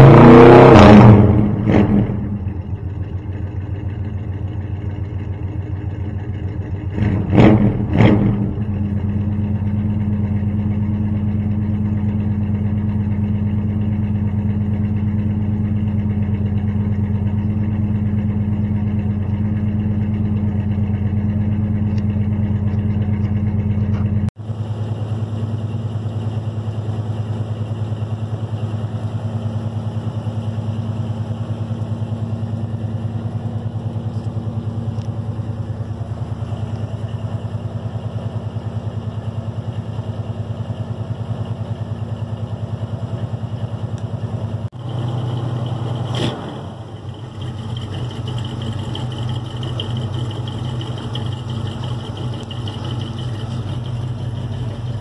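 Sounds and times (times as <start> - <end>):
engine revving blips: 0.0 - 2.7, 6.9 - 24.3, 44.0 - 55.0
pickup engine idling: 1.4 - 55.0.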